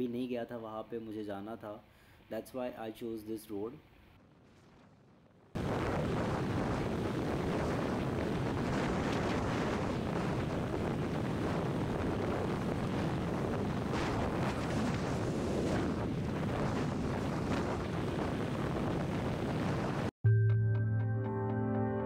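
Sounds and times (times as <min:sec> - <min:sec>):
wind rushing over microphone: 0:04.2 - 0:20.1.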